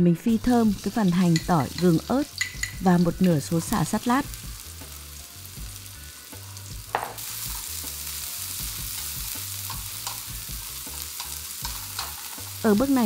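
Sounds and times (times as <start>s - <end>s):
aromatics sizzling in hot oil: 0.2s - 13.0s
chopsticks tapping a wok: 1.3s - 2.8s, 8.9s - 12.4s.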